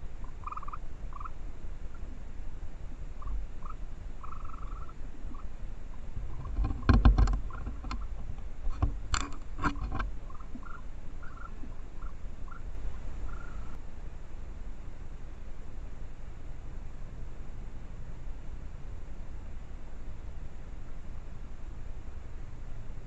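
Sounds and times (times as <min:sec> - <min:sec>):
faint chirps: 0:00.0 - 0:08.2, 0:10.2 - 0:13.8.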